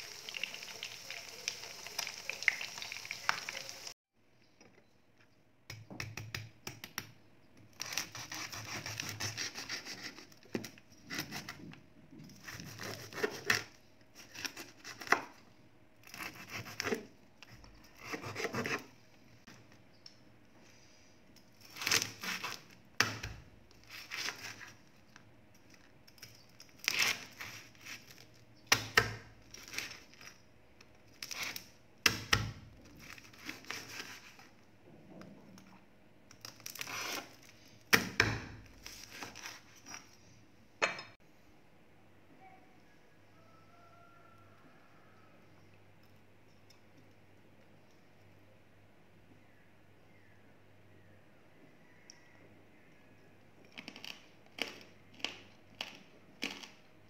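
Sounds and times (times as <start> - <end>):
pork frying in oil: 0.0 - 4.0
knife crunching crisp pork skin: 7.7 - 11.6.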